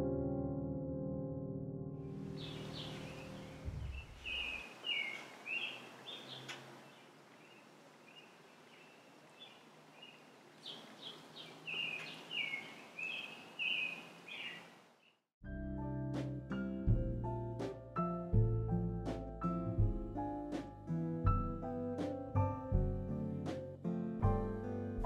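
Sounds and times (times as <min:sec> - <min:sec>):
piano music: 0:00.0 - 0:03.8, 0:15.5 - 0:25.0
faint outdoor hiss: 0:02.1 - 0:15.2
songbird chirping: 0:02.2 - 0:15.2.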